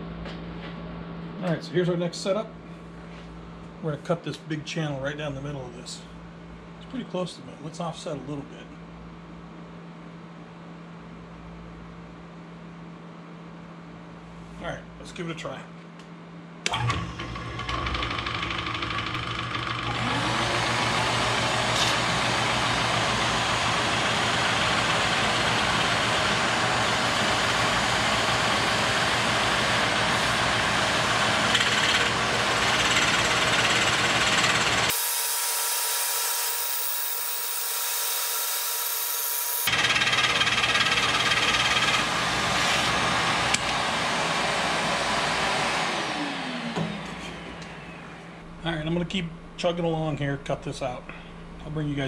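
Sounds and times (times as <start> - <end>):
end mill cutting wood: 16.7 - 47.9
milling machine motor hum: 16.7 - 48.4
shop vacuum hiss: 34.8 - 39.7.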